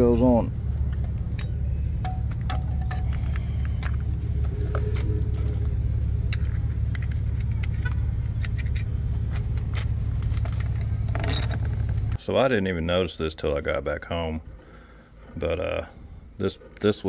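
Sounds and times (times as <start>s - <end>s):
steady low rumble: 0.0s - 13.3s
metal tools clicking and tapping: 0.9s - 4.0s.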